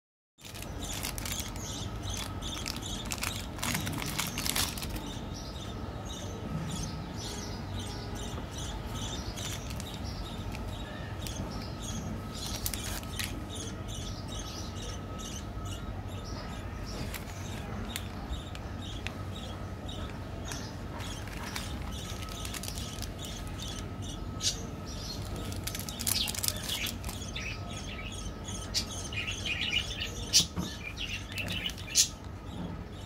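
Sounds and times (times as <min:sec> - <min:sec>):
plastic wrappers crinkling: 0:00.4 - 0:05.1, 0:09.4 - 0:10.8, 0:12.4 - 0:13.4, 0:21.0 - 0:23.8, 0:25.1 - 0:27.4.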